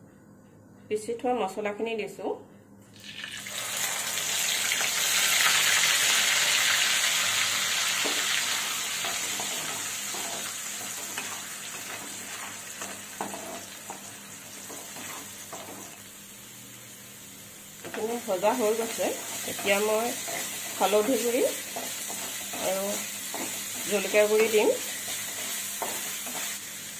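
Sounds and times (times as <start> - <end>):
paste sizzling in hot oil: 3.0 - 16.4, 17.8 - 26.9
spatula scraping and stirring: 9.0 - 15.9, 18.8 - 26.6.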